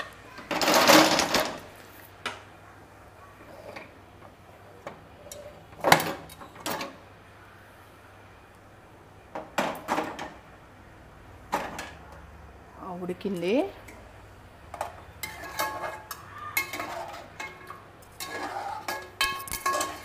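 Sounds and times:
metal lid clicks and clanks: 0:14.8 - 0:20.0.

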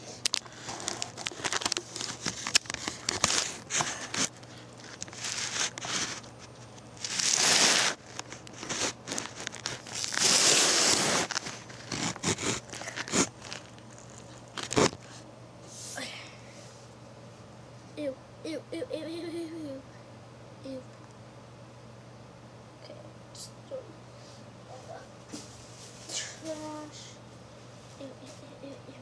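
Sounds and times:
recording device handling noise: 0:00.0 - 0:15.2
rustling and crinkling: 0:00.0 - 0:15.2, 0:24.7 - 0:28.5.

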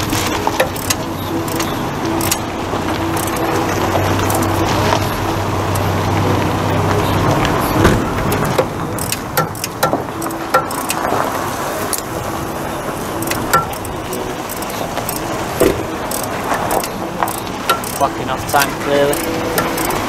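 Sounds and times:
diesel bus engine running: 0:00.0 - 0:20.0
sharp clicks and clinks: 0:08.4 - 0:11.1, 0:13.2 - 0:15.3, 0:16.1 - 0:20.0.

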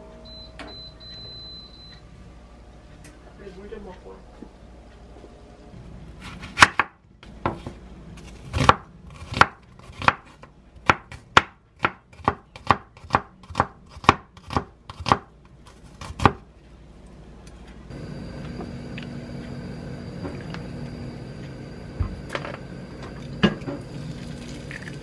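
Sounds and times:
knife slicing onion on board: 0:06.2 - 0:16.5.

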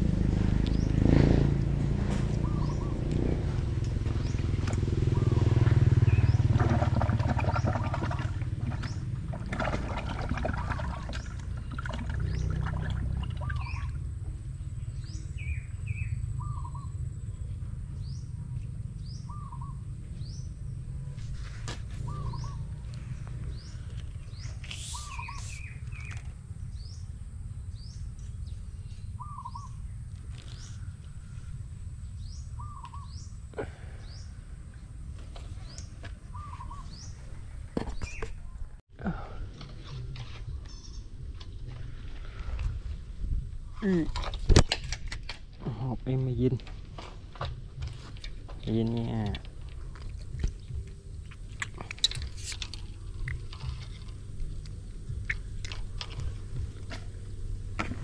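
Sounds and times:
low rumble: 0:00.0 - 0:58.0
thin high bird chirps: 0:23.5 - 0:26.4
short hooked bird call: 0:24.7 - 0:25.8.

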